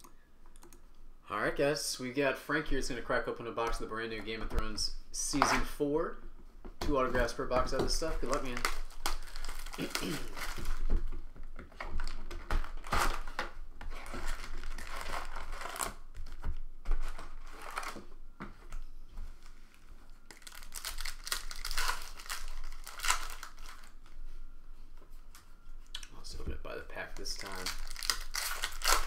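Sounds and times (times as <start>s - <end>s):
foil and cardboard crinkling: 7.1s - 11.2s, 11.8s - 18.0s, 20.3s - 24.2s, 27.2s - 29.0s.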